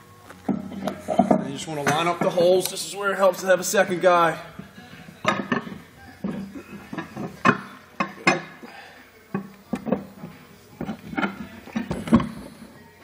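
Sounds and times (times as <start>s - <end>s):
metal table parts knocking: 5.0s - 8.5s.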